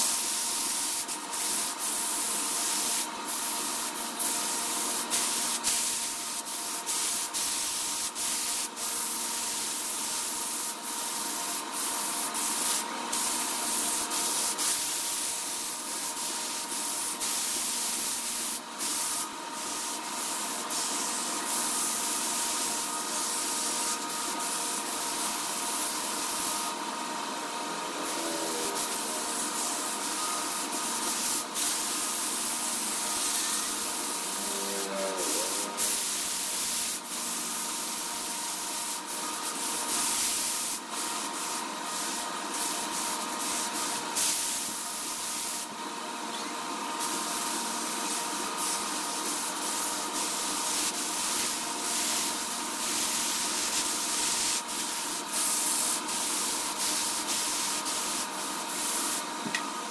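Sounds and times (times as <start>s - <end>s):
lathe scraping hiss: 27.9s - 40.2s.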